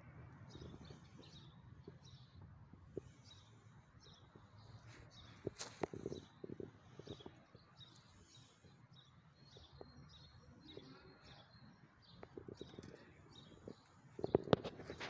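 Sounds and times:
faint bird chirps: 0:03.0 - 0:15.0.

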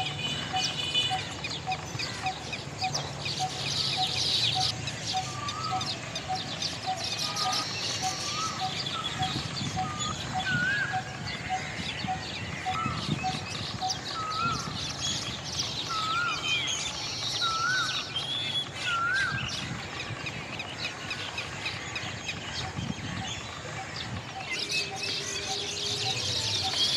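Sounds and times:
high-pitched bird chatter: 0:00.0 - 0:26.9.

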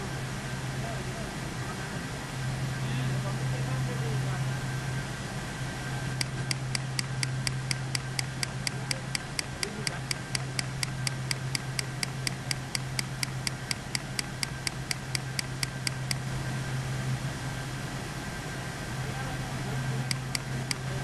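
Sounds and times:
steady low hum: 0:00.0 - 0:21.0
computer mouse clicking: 0:06.2 - 0:16.2, 0:20.1 - 0:20.9.

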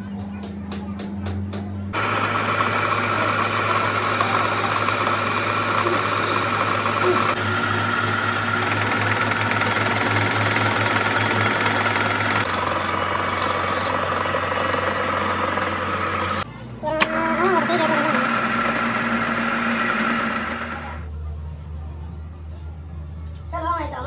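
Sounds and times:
metal lathe cutting: 0:02.0 - 0:16.4, 0:17.0 - 0:21.1.

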